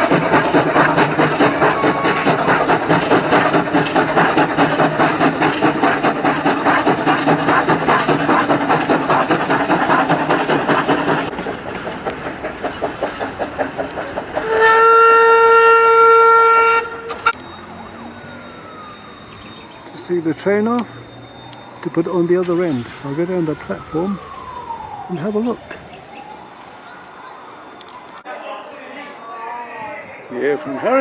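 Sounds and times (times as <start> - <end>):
steam locomotive exhaust chuffs: 0.0 - 25.5
steam whistle: 14.4 - 19.0.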